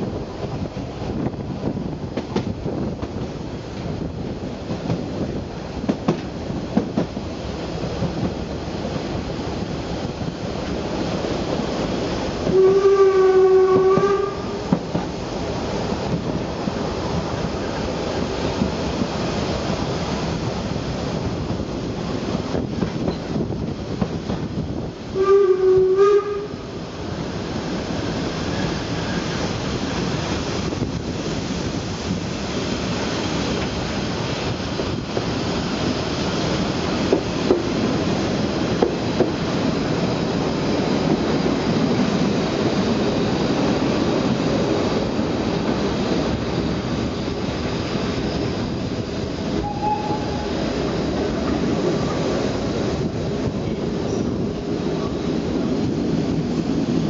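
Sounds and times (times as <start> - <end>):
train rolling on rails: 0.0 - 57.0
steam locomotive whistle: 12.4 - 14.7, 25.2 - 26.7, 49.6 - 50.7.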